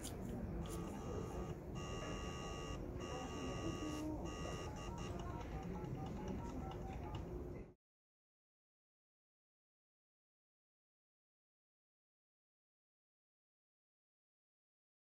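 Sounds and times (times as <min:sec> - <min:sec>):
fax machine tones: 0:00.7 - 0:07.4.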